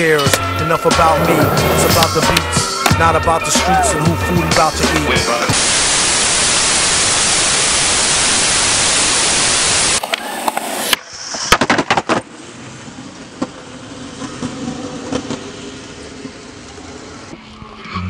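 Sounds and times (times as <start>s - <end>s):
skateboard wheels rolling on concrete: 0.0s - 7.4s, 8.0s - 17.9s
tv static hiss: 5.0s - 10.9s
sharp skateboard clacks: 10.0s - 12.3s.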